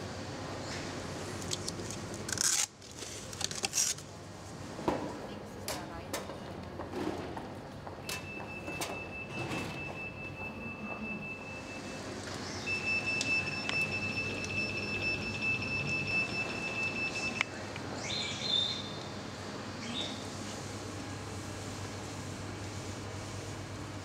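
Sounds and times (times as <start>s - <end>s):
metal detector electronic tone: 12.7s - 17.4s.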